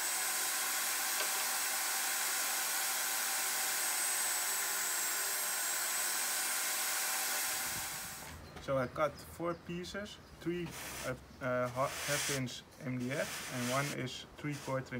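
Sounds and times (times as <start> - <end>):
shop vacuum dust extraction: 0.0 - 8.3, 13.0 - 14.9
table saw running: 0.0 - 8.3.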